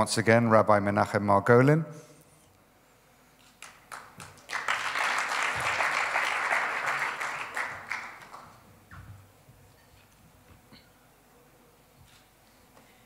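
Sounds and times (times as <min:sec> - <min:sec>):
audience applauding: 0:03.6 - 0:08.7.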